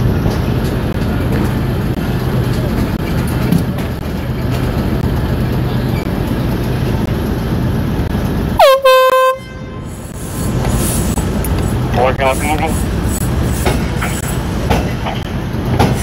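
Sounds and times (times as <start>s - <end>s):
machinery rumble and hum: 0.0s - 16.0s
horn blast: 8.6s - 9.9s.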